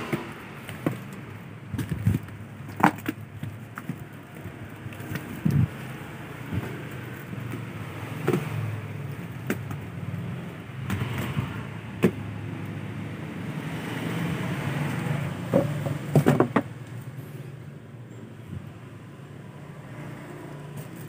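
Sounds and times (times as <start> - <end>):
cellophane-wrapped packs knocking and crackling: 0.0 - 11.4.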